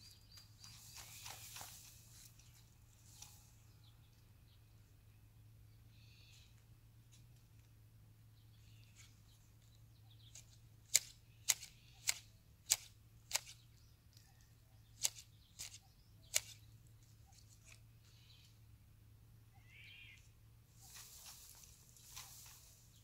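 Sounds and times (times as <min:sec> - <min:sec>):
pruning shears snipping: 0:10.2 - 0:13.6, 0:15.0 - 0:16.7.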